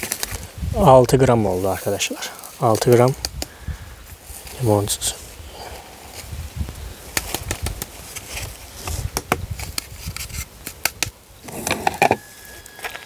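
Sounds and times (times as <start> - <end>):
handling rustle: 4.0 - 13.0.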